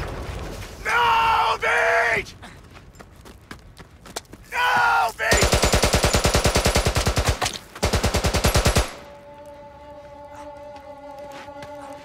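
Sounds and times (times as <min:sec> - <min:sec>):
machine gun firing: 0:05.3 - 0:09.0.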